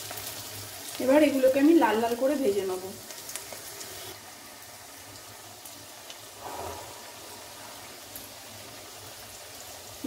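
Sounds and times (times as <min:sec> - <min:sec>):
food deep-frying in oil: 0:00.0 - 0:10.0.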